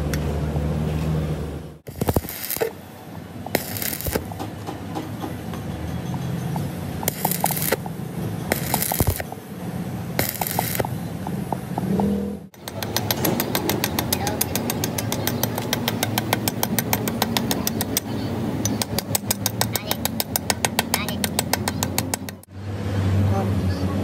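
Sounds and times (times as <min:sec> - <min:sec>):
welding torch flame hissing: 0:01.8 - 0:02.9, 0:03.5 - 0:04.4, 0:07.0 - 0:07.9, 0:08.5 - 0:09.4, 0:10.1 - 0:11.0
molten metal crackling: 0:01.8 - 0:04.4, 0:06.6 - 0:11.2
rapid regular ticking: 0:07.0 - 0:07.8, 0:08.5 - 0:09.3, 0:10.2 - 0:10.9, 0:12.6 - 0:22.5.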